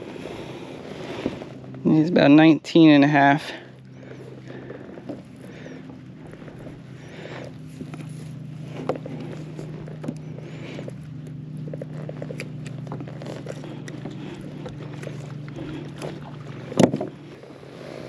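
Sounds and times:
fish handled in plastic kayak: 0.0 - 18.0
steady low hum: 0.0 - 18.0.

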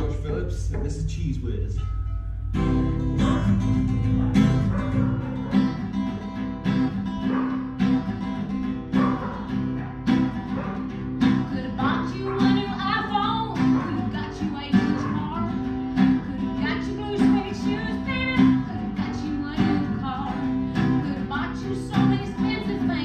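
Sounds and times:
acoustic guitar strumming: 0.0 - 23.0
woman singing: 11.3 - 23.0.

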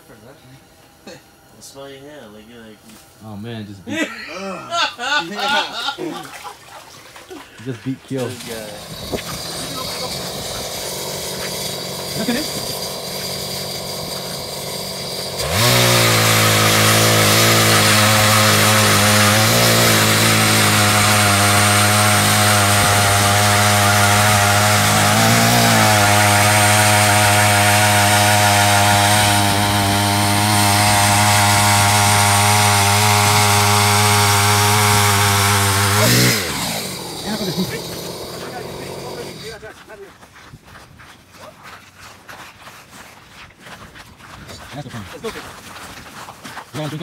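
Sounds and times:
ice auger engine running: 8.1 - 39.7.

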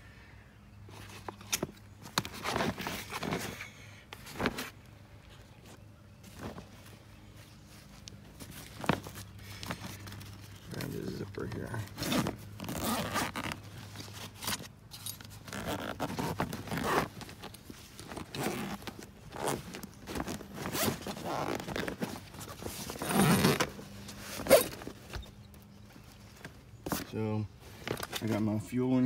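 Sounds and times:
bag zipper being pulled: 11.8 - 24.9.

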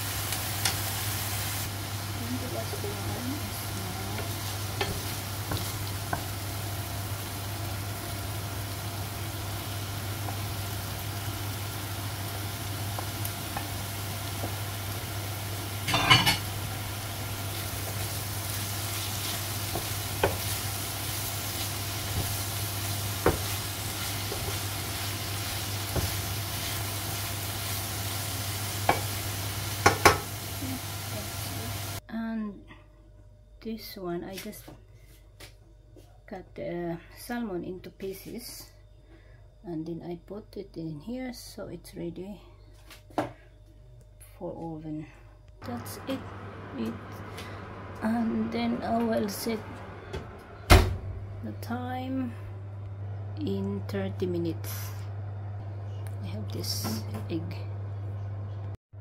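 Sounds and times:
vegetables sizzling in a frying pan: 0.0 - 32.0
steady low hum: 0.0 - 59.0.

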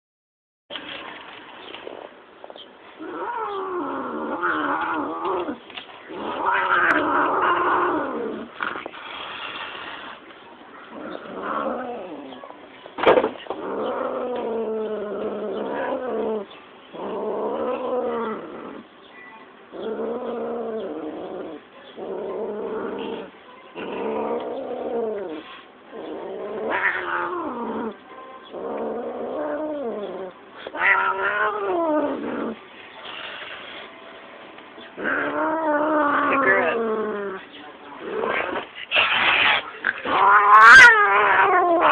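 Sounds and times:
cat yowling: 26.5 - 27.9, 30.7 - 32.6, 35.0 - 37.4, 39.3 - 41.9.

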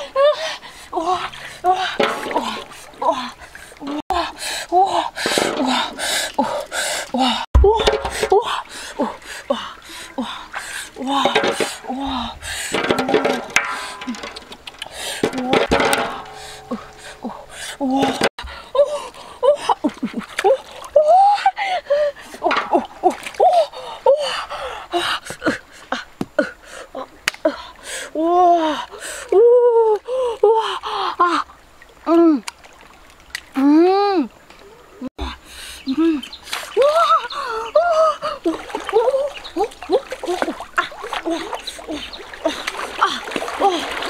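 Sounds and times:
woman gasping and exclaiming: 0.0 - 12.9, 16.2 - 31.4, 35.2 - 39.3
river water splashing: 0.0 - 28.1, 28.8 - 44.0.

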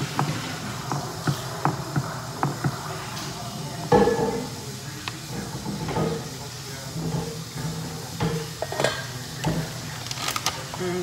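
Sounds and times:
background hiss and hum: 0.0 - 11.0
utensils and dishes knocking: 3.9 - 4.6, 5.3 - 6.4, 7.0 - 9.8.

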